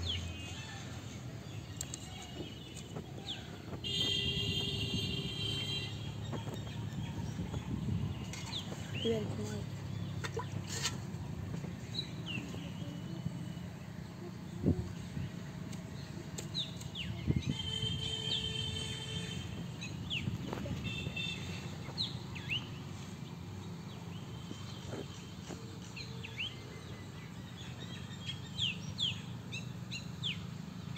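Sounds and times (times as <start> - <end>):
small birds chirping: 0.0 - 30.9.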